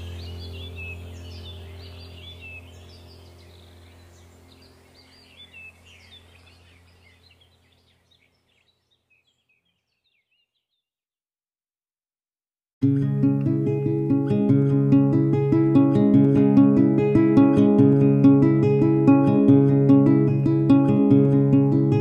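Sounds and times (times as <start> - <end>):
low steady hum: 0.0 - 8.5, 12.8 - 22.0
small birds chirping: 0.0 - 10.9.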